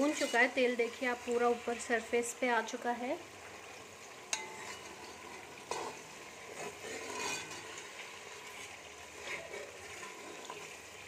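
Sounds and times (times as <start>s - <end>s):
spoon scraping metal pot: 0.0s - 0.6s, 4.3s - 10.8s
food sizzling in oil: 0.0s - 11.0s.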